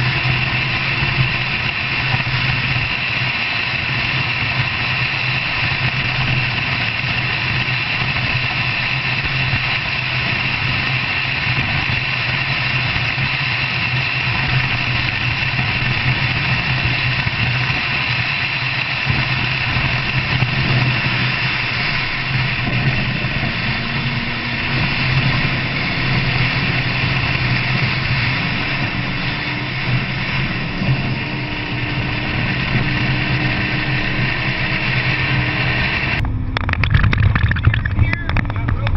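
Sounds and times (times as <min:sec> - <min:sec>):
vehicle engine hum: 0:00.0 - 0:38.9
tyre and gravel noise: 0:36.2 - 0:38.9.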